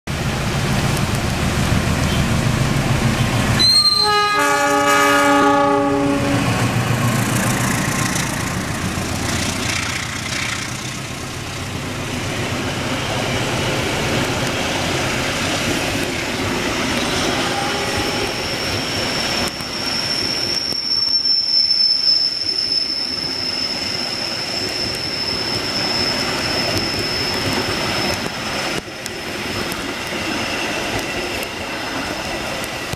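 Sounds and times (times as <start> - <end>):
diesel locomotive rumbling: 0.1 - 32.9
train wheels on rails: 0.1 - 32.9
high steady squeal: 1.9 - 4.4, 5.3 - 32.9
train horn blast: 3.6 - 6.6, 17.1 - 18.4.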